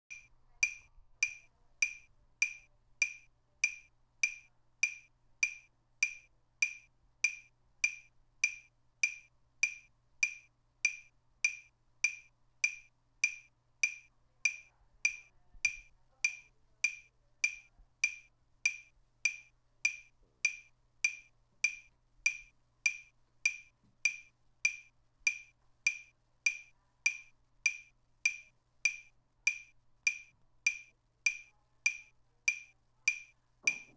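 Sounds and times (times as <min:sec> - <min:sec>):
metronome ticking: 0:00.0 - 0:33.9.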